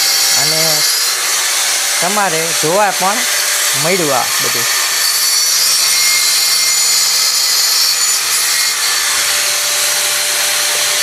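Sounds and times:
tile cutter grinding tile: 0:00.0 - 0:11.0.

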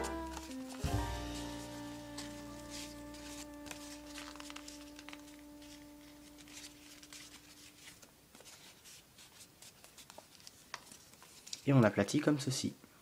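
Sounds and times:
background music chord: 0:00.0 - 0:06.6
paper rustling and crinkling: 0:00.0 - 0:12.1.

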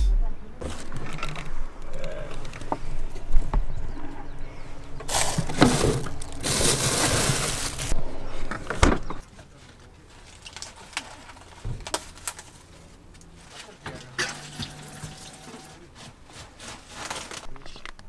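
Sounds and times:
plastic bags crinkling: 0:05.1 - 0:08.0, 0:10.1 - 0:13.8, 0:15.9 - 0:18.0.

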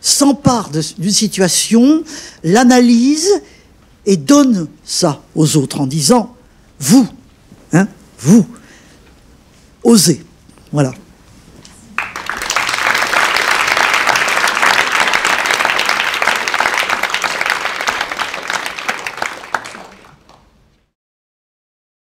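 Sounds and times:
audience applauding: 0:12.0 - 0:20.7.

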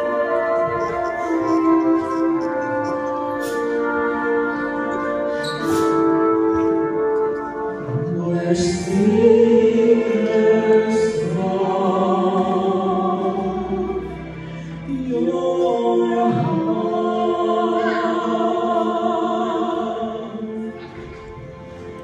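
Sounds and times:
man and woman singing duet: 0:07.8 - 0:14.1, 0:14.8 - 0:20.8.

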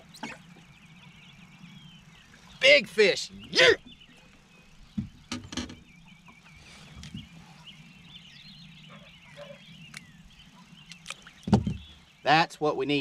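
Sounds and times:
songbird warbling: 0:00.0 - 0:13.0
knocks and thumps on boat deck: 0:04.9 - 0:05.9, 0:11.4 - 0:11.9.

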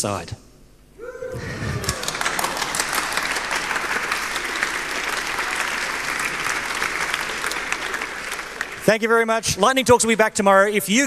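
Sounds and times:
large audience clapping: 0:01.4 - 0:09.9.

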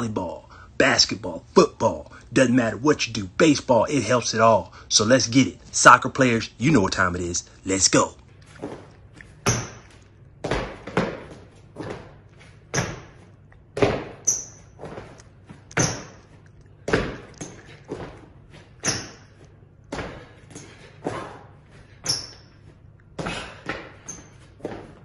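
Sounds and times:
thuds of burpees on floor: 0:08.6 - 0:25.0.

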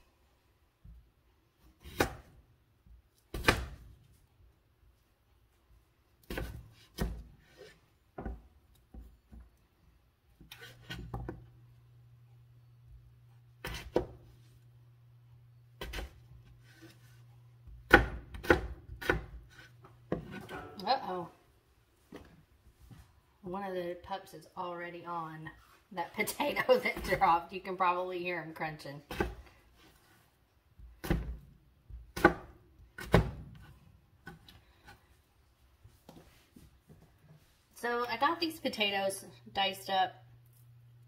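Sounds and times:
knife chopping on cutting board: 0:13.6 - 0:14.2, 0:17.8 - 0:20.8, 0:32.0 - 0:35.0.

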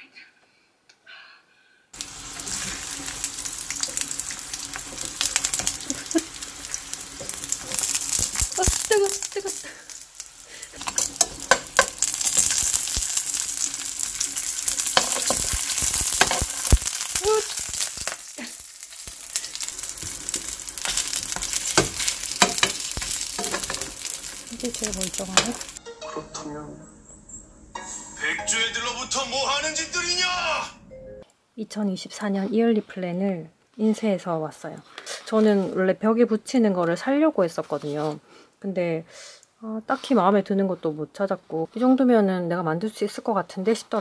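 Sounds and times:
dumplings sizzling in oil: 0:02.0 - 0:25.8
oil crackling and popping: 0:02.0 - 0:25.8.

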